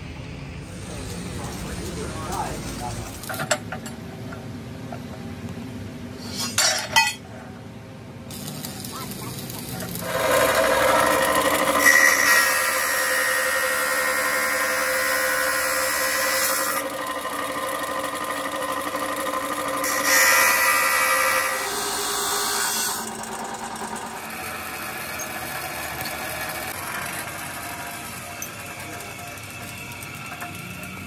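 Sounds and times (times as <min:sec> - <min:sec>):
cut-off saw grinding steel: 0:08.3 - 0:31.0
saw wheel spinning: 0:08.3 - 0:31.0.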